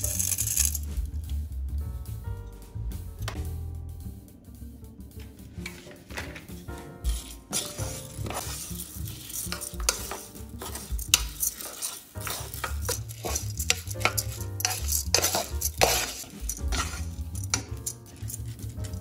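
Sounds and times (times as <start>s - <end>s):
spoon stirring rice in pot: 7.0s - 19.0s.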